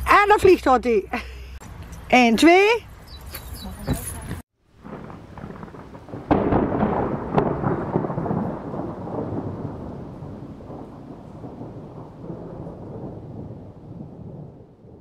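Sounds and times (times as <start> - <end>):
rolling thunder rumble: 4.7 - 15.0
thunder crack: 4.8 - 15.0.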